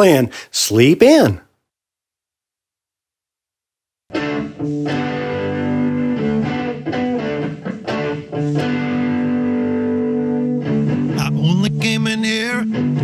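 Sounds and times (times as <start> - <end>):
rock band playing: 4.1 - 13.0.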